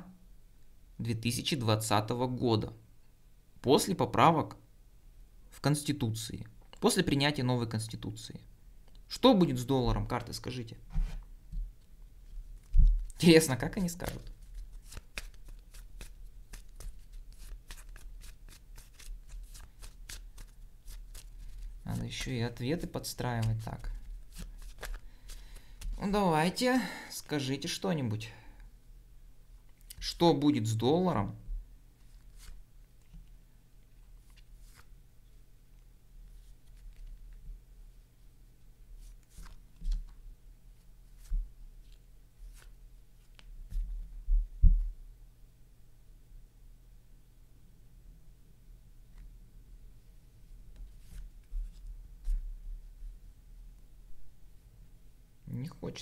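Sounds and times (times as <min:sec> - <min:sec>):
playing cards being shuffled: 0:13.8 - 0:26.2, 0:32.0 - 0:33.3, 0:34.2 - 0:34.9, 0:36.3 - 0:37.4, 0:39.0 - 0:40.2, 0:41.1 - 0:44.0, 0:50.8 - 0:52.4.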